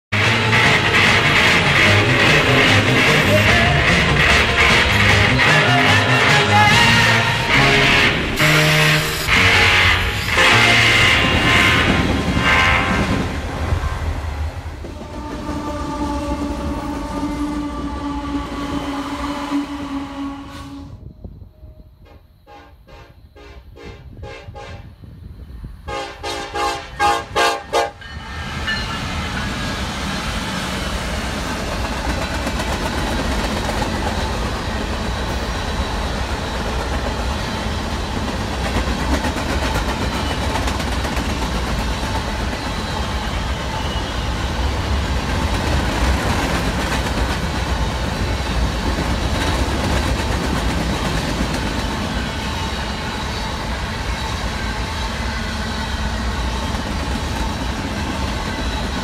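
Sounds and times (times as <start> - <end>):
locomotive horn blasts: 0.1 - 13.4, 14.9 - 21.1, 22.0 - 24.9, 25.9 - 28.0
freight train rumbling past: 0.1 - 59.0
steel wheels on rails: 0.2 - 20.2, 26.6 - 59.0.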